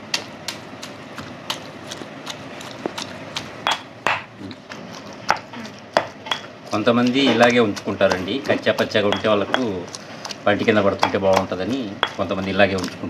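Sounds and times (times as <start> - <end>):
stone pestle pounding in mortar: 2.7 - 4.3, 5.3 - 12.9.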